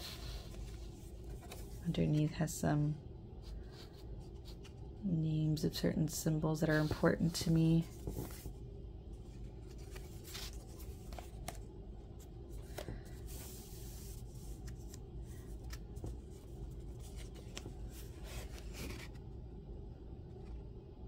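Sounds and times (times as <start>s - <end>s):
paper pages rustling: 0.0s - 2.2s, 6.7s - 8.6s, 9.3s - 19.2s
low room hum: 0.0s - 21.0s.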